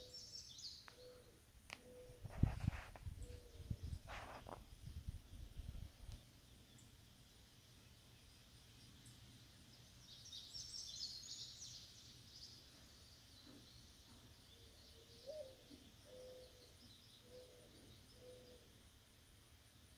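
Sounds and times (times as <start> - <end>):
small birds chirping: 0.0 - 19.0
low bird call notes: 14.6 - 18.7.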